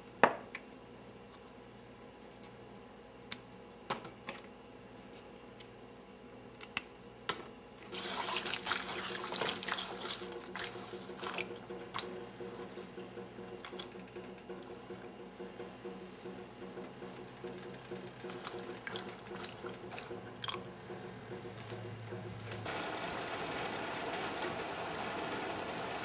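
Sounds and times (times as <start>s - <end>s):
pea pod stems snapping: 6.5s - 6.9s
water splashing in metal bowl: 7.9s - 12.5s, 18.2s - 20.8s.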